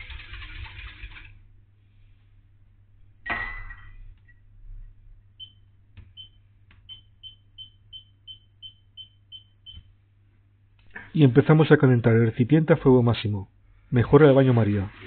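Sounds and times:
hob touch control beeps: 0:06.2 - 0:09.8.

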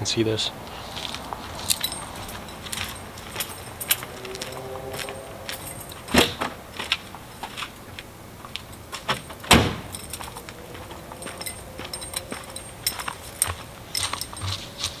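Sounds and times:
light clicks and scuffs: 0:00.7 - 0:05.7
knocks and clunks around a car: 0:02.7 - 0:10.4.

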